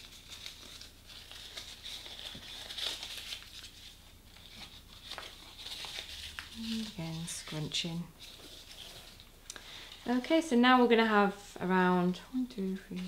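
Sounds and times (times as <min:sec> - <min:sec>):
paper being scrunched: 0:00.0 - 0:09.3.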